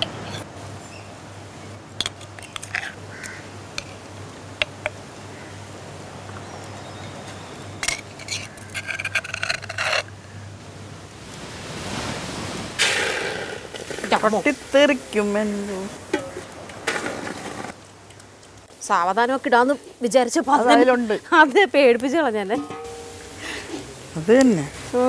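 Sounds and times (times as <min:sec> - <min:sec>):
metal spoon scraping stone mortar: 0:07.9 - 0:10.0.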